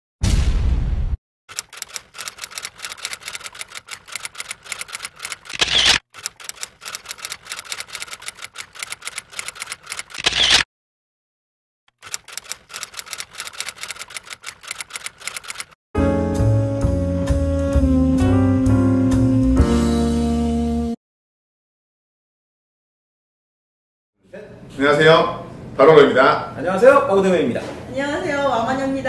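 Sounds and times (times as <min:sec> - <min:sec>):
typewriter key clacks: 0:01.5 - 0:10.4, 0:12.0 - 0:15.8
typewriter carriage sweep: 0:01.5 - 0:10.7, 0:12.0 - 0:15.8.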